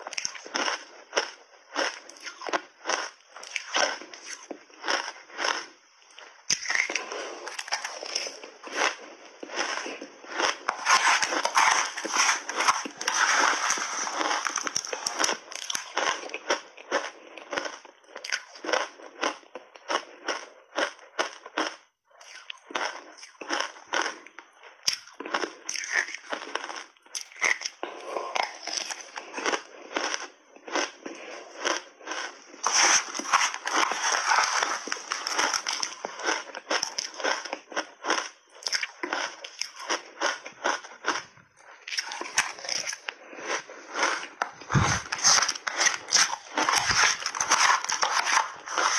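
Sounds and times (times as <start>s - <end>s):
shaved ice being chewed: 0.0s - 48.9s.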